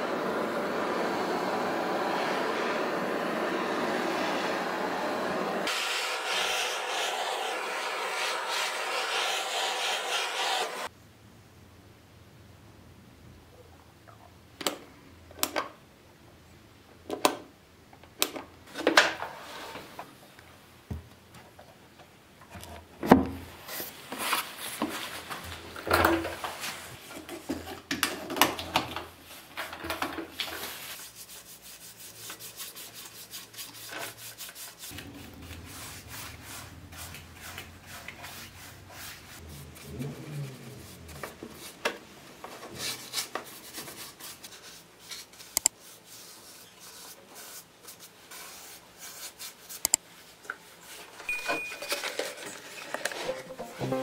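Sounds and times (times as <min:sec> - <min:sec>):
rubbing and brushing: 0:05.6 - 0:10.9, 0:29.2 - 0:51.3.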